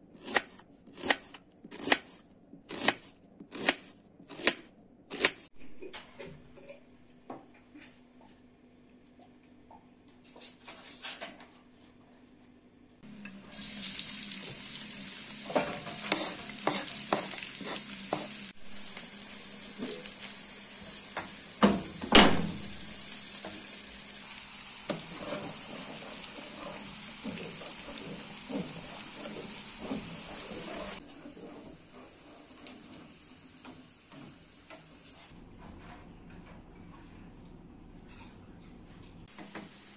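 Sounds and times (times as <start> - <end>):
onions sizzling in oil: 13.1 - 35.1, 39.3 - 39.9
wooden spoon scraping pan: 15.5 - 18.5, 24.9 - 32.9.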